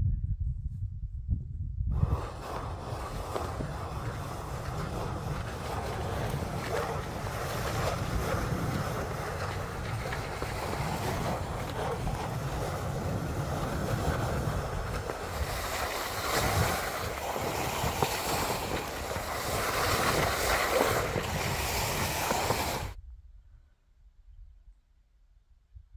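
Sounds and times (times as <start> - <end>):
wind buffeting microphone: 0.0 - 23.6
skis scraping over snow: 2.0 - 23.0.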